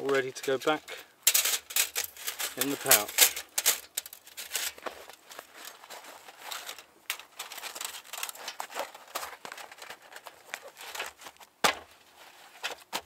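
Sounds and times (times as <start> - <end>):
fabric pouch rustling: 4.8 - 6.8, 7.4 - 12.9.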